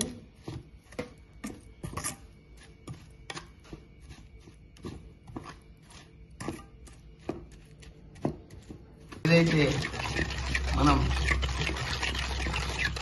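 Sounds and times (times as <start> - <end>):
metal ladle scraping a pan: 1.6 - 3.5, 9.3 - 13.0.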